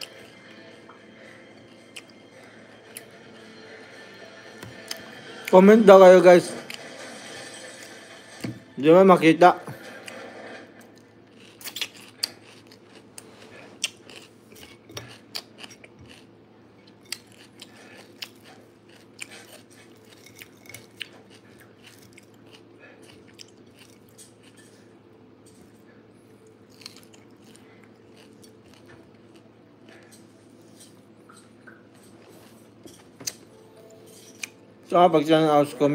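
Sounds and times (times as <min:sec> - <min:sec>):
person chewing fish: 0:10.8 - 0:24.7, 0:26.4 - 0:30.2.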